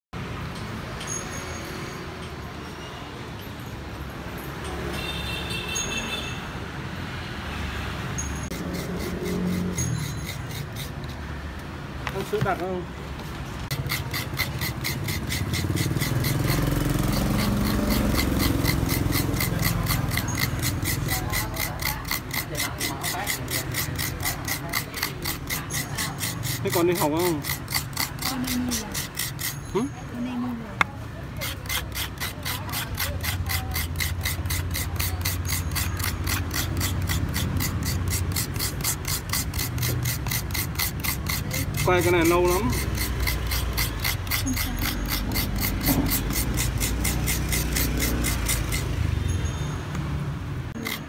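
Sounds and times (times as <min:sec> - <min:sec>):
coconut scraping rasps: 0:08.5 - 0:11.4, 0:13.7 - 0:49.2, 0:50.7 - 0:51.0.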